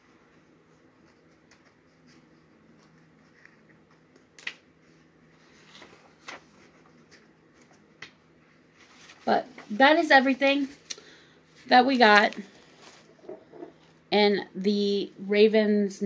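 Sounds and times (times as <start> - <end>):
paper rustling: 0.8 - 9.9, 12.0 - 13.9.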